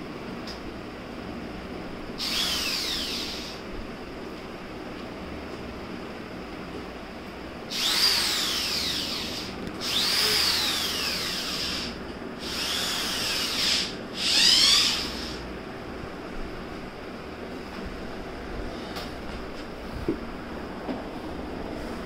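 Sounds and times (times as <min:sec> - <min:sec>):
electric drill motor whine: 0:02.2 - 0:03.6, 0:07.7 - 0:15.5.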